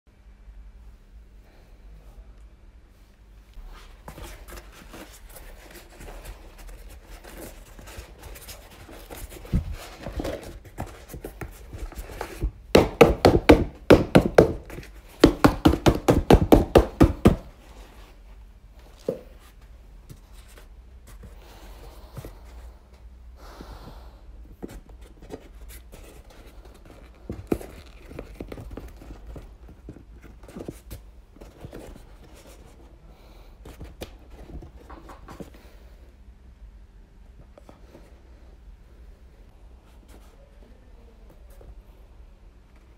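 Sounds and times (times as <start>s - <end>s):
plastic decoy rustling and crinkling: 25.1s - 32.8s.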